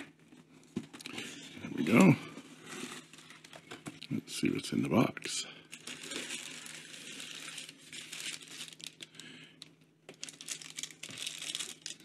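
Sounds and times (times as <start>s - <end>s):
tissue paper rustling: 5.7s - 9.1s, 10.2s - 12.0s.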